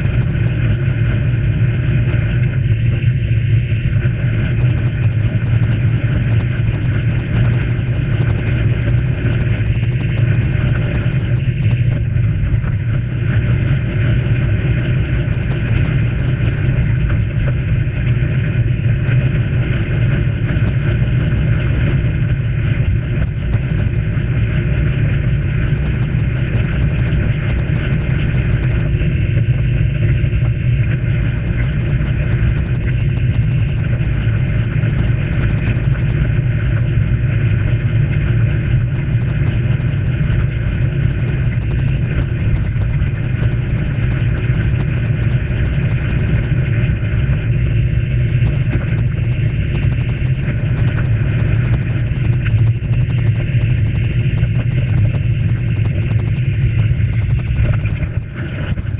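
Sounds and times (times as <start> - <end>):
bike ticks: 25.7 - 28.9, 31.4 - 36.1, 39.0 - 46.5, 48.3 - 58.9.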